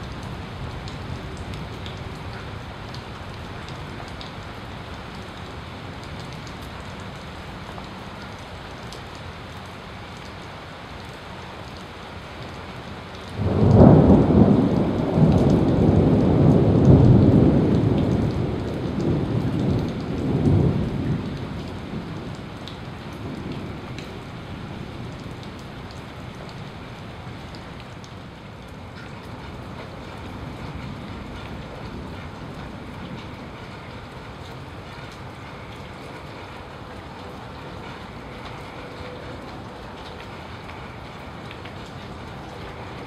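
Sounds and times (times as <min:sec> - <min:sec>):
steady rain: 0:00.0 - 0:43.0
thunderclap rumbling: 0:13.4 - 0:25.7.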